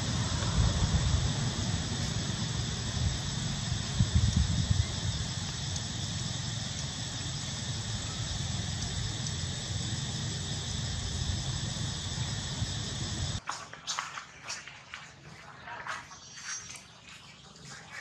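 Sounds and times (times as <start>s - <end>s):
insect-like hiss: 0.0s - 13.4s
low rumble: 0.0s - 13.4s.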